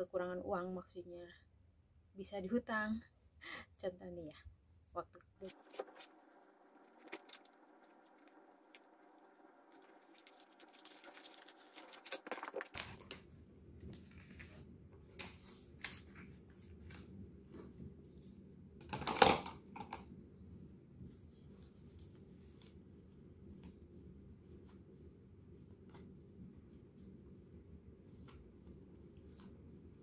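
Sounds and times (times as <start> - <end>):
paper rustling and flicking: 5.4 - 17.1.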